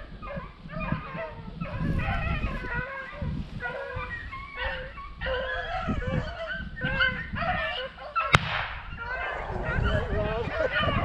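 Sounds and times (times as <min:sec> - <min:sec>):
beagles baying: 0:00.0 - 0:11.0
sharp crack: 0:08.3 - 0:08.9.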